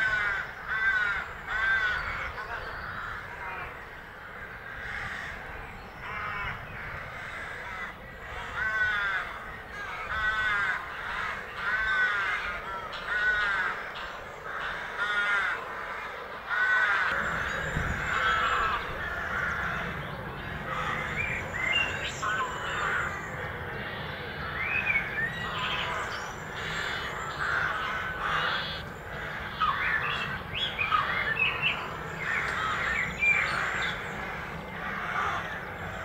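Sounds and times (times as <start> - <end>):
geese honking: 0.0 - 36.0.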